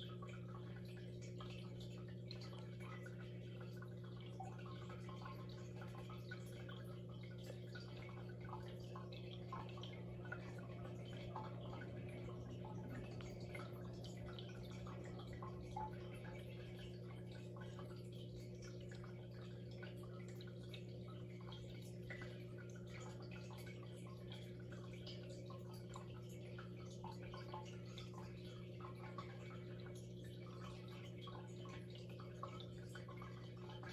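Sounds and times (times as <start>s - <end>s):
aquarium filter hum: 0.0s - 33.9s
water dripping and trickling: 0.0s - 33.9s.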